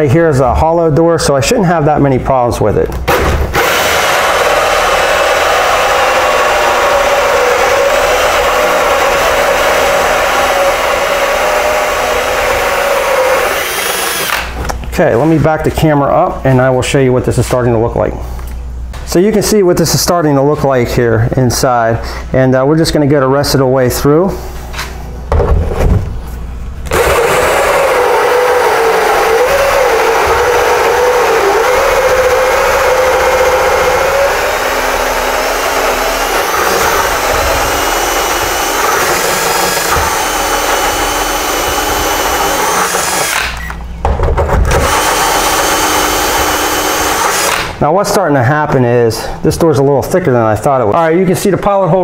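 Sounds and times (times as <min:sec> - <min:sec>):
drill motor whine: 0:03.6 - 0:14.5, 0:26.9 - 0:43.9, 0:44.7 - 0:47.7
hole saw cutting wood: 0:03.6 - 0:14.5, 0:26.9 - 0:43.6, 0:44.7 - 0:47.7.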